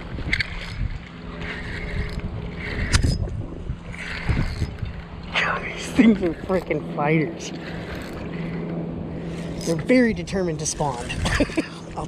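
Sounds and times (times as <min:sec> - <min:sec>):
wind buffeting microphone: 0:00.0 - 0:12.0
fishing reel handling rustles: 0:00.2 - 0:03.3, 0:03.9 - 0:05.2, 0:07.6 - 0:09.8.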